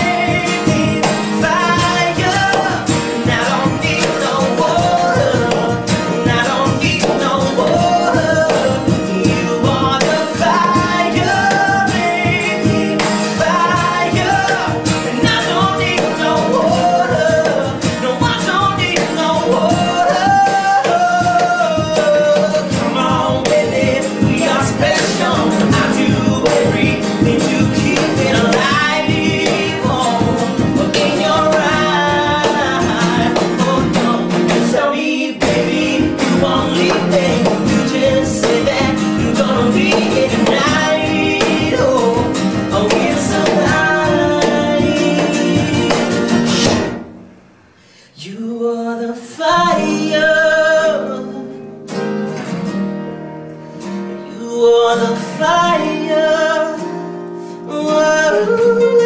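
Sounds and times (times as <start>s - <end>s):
person singing: 0.0s - 47.0s
acoustic guitars strummed: 0.0s - 59.0s.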